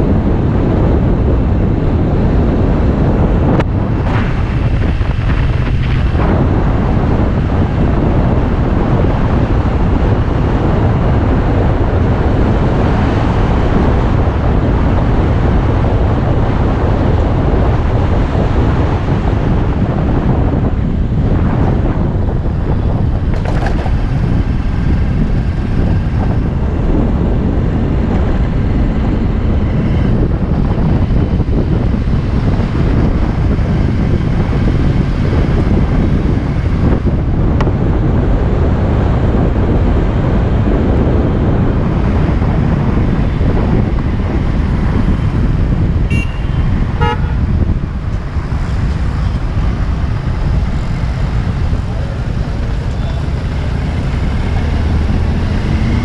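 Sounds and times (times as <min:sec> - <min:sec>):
wind and road noise: 0:00.0 - 0:56.0
vehicle horn tooting: 0:46.0 - 0:47.6.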